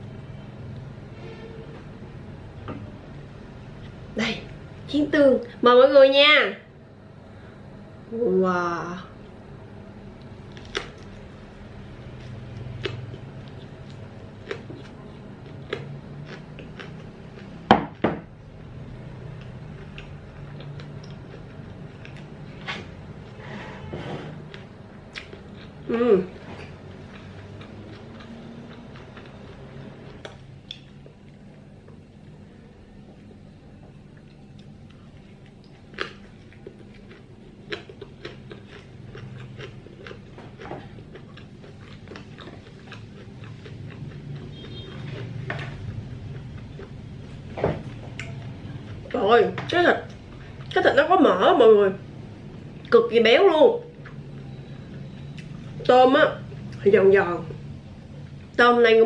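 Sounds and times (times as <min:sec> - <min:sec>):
low steady hum: 0:00.0 - 0:59.0
chewing: 0:12.0 - 0:17.7, 0:19.3 - 0:22.9, 0:24.5 - 0:32.4, 0:34.1 - 0:49.1, 0:50.1 - 0:50.8, 0:53.9 - 0:55.9.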